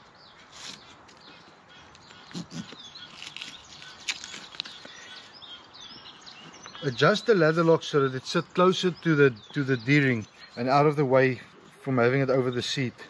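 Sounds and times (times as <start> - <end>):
birds chirping: 0.0 - 13.0
strap rustling: 2.4 - 5.0.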